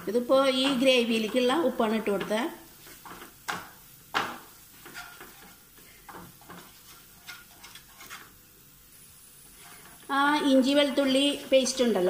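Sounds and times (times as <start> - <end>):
spatula scraping paste in pan: 0.0 - 8.4, 9.5 - 10.0
faint sizzle: 0.0 - 12.0.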